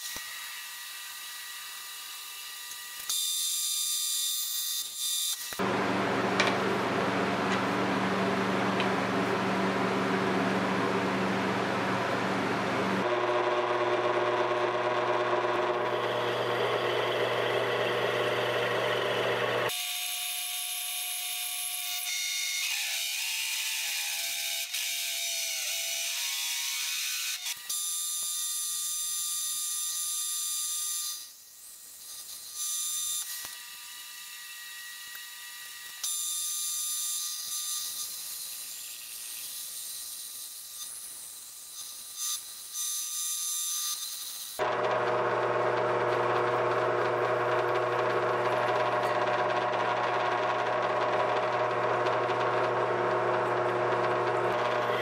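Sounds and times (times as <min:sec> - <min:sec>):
milling machine cutter whirring: 0:12.1 - 0:19.8, 0:44.6 - 0:55.0.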